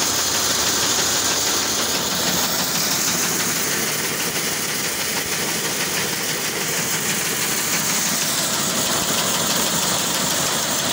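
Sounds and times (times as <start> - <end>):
kernels pouring and rattling: 0.0 - 10.9
seed cleaning machine running: 0.0 - 10.9.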